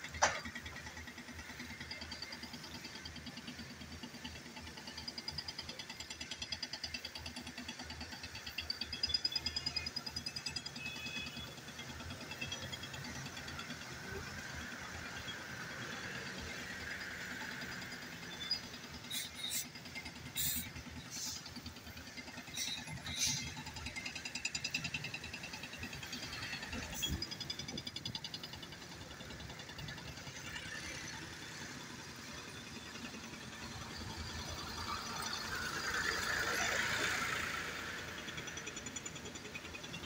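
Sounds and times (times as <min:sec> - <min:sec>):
excavator diesel engine running: 0:00.0 - 0:40.0
hiss: 0:19.0 - 0:21.7, 0:22.5 - 0:24.2.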